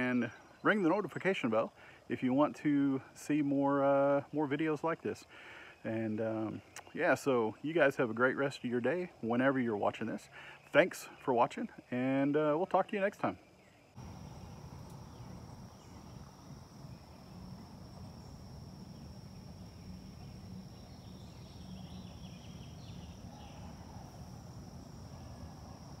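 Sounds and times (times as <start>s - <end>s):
faint chirps: 13.2s - 26.0s
insect trilling: 14.0s - 26.0s
low background rumble: 14.0s - 26.0s.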